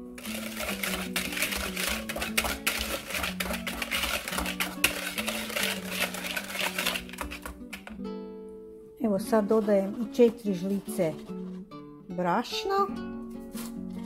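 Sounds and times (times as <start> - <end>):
soft acoustic guitar music: 0.0 - 14.0
whisk clicking against plastic jug: 0.2 - 7.9.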